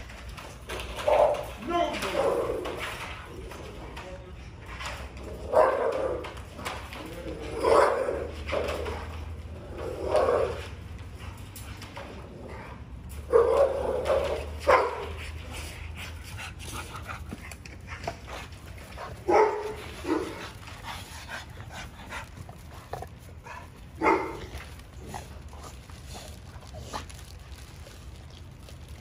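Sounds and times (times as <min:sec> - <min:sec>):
dogs barking: 0:05.4 - 0:06.4, 0:07.5 - 0:09.3, 0:13.2 - 0:15.6, 0:18.7 - 0:20.7, 0:23.0 - 0:25.3.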